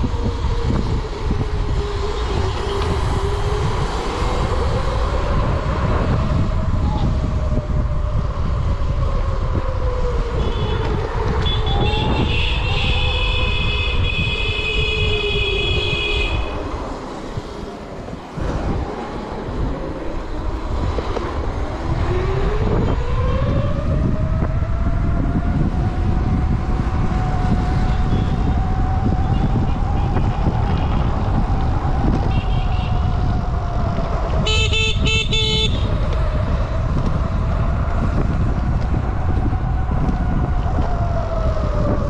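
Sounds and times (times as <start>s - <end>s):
wind and road rumble: 0.0s - 42.0s
horn honking: 10.4s - 16.6s, 34.4s - 35.9s.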